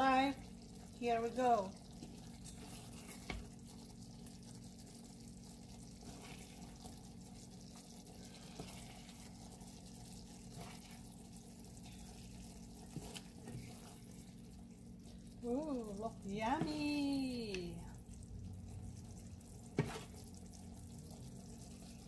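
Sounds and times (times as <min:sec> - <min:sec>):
low steady hum: 0:00.0 - 0:22.0
wooden spoon scraping a pan: 0:01.9 - 0:03.8, 0:05.7 - 0:07.1, 0:07.7 - 0:14.5, 0:19.7 - 0:20.3.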